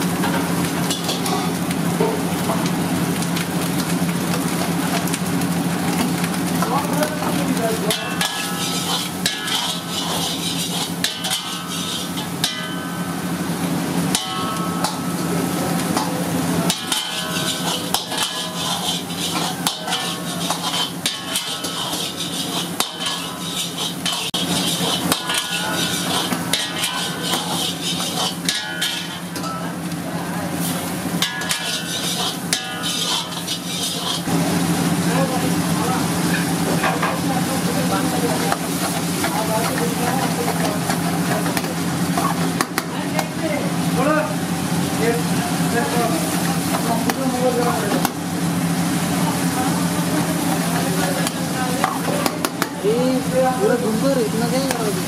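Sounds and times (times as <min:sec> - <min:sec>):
metal clanks: 0:16.7 - 0:29.7, 0:31.2 - 0:34.2.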